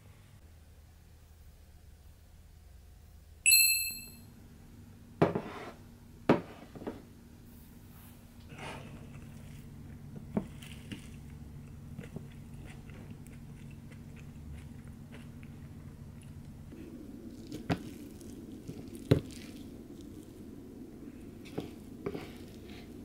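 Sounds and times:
faint low hum: 0:00.0 - 0:23.0
person chewing: 0:09.1 - 0:20.5.

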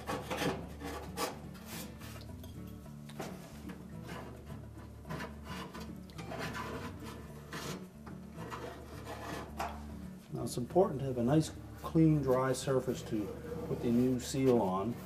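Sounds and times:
putty knife scraping: 0:00.0 - 0:02.3, 0:03.2 - 0:09.9.

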